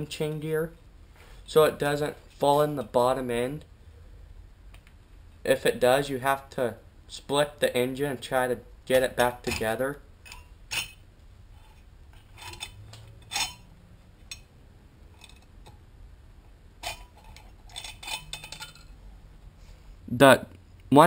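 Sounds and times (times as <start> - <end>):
metal clinks and knocks: 9.4 - 11.0, 11.6 - 14.5, 15.1 - 15.8, 16.8 - 19.0.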